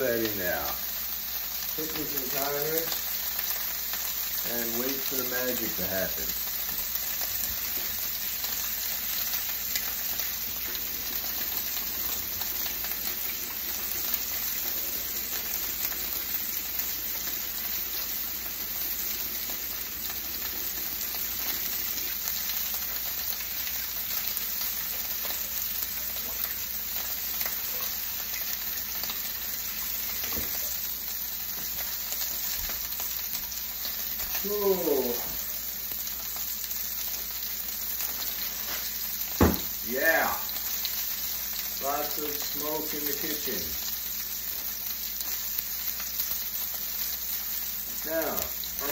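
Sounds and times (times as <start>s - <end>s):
steak sizzling in frying pan: 0.0s - 48.9s.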